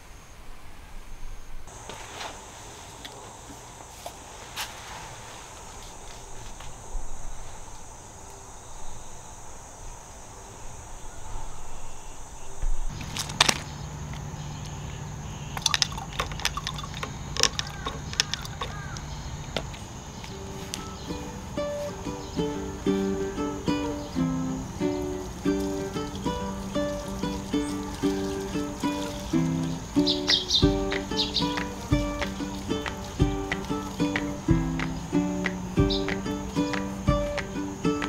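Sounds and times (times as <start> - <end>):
high insect drone: 0.0 - 38.0
sharp clicks: 15.5 - 19.6
plucked-string music: 20.3 - 38.0.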